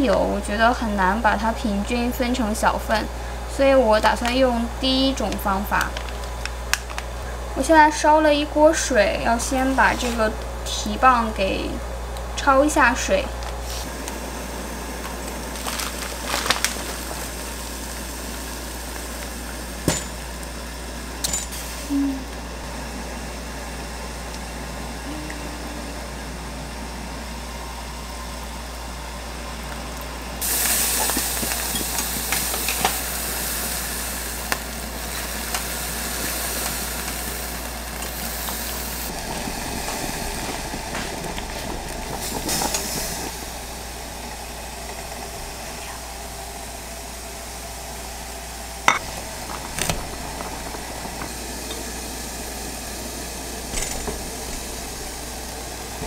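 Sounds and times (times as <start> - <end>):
low hum: 0.0 - 36.3, 37.6 - 56.0
hiss of rushing water: 13.0 - 29.5, 30.4 - 56.0.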